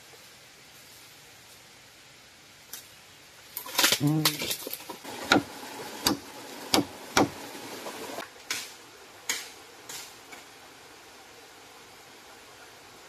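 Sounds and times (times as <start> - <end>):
blade chopping bamboo: 5.1 - 7.4.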